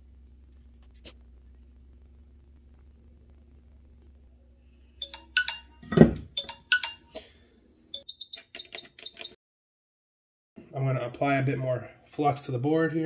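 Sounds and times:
low steady hum: 0:00.0 - 0:08.0
short electronic beeps: 0:05.0 - 0:07.3, 0:07.9 - 0:09.4.

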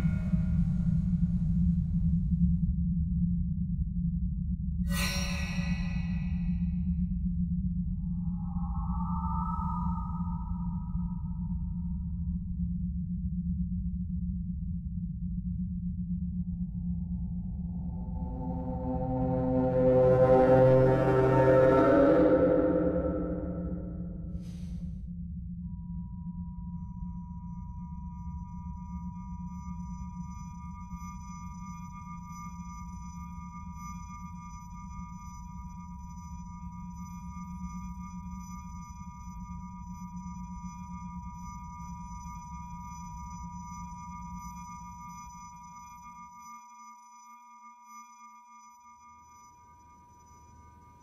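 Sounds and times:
high-pitched ringing tone: 0:00.0 - 0:02.3, 0:04.9 - 0:07.0, 0:07.8 - 0:12.9, 0:16.2 - 0:24.4, 0:25.5 - 0:51.0
low rumble: 0:05.3 - 0:25.6.

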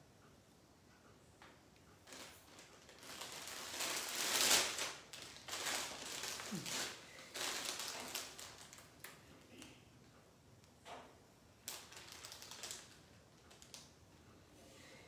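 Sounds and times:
crinkling rustling handling noise: 0:02.0 - 0:09.8, 0:11.6 - 0:14.0.

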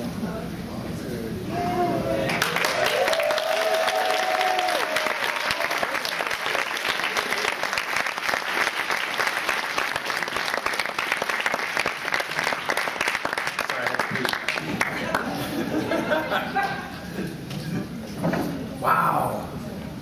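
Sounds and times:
audience applauding: 0:02.2 - 0:16.0.

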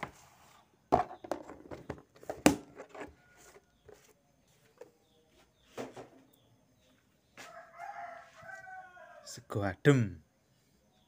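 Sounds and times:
faint chicken calls: 0:02.8 - 0:09.6.

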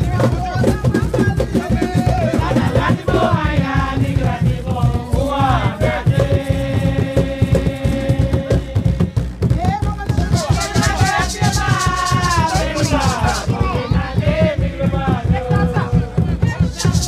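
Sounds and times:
drum beat: 0:00.0 - 0:17.0
voices singing: 0:00.0 - 0:17.0
rattles shaking: 0:10.3 - 0:13.5.

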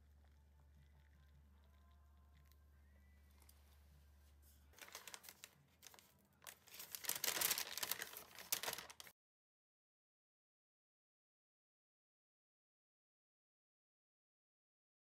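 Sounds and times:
paper bag crinkling: 0:04.5 - 0:09.1.

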